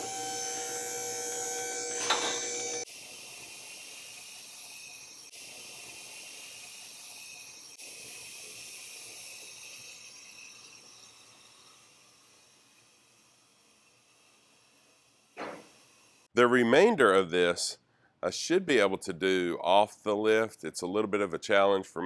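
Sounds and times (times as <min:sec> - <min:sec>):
hydraulic pump motor whine: 0:00.0 - 0:07.8.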